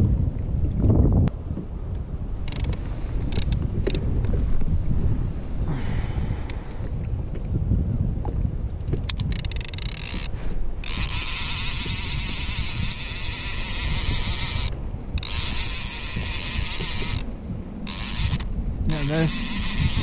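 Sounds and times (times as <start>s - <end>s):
fishing reel ratchet clicking: 2.4s - 4.0s, 9.1s - 17.3s, 17.9s - 20.0s.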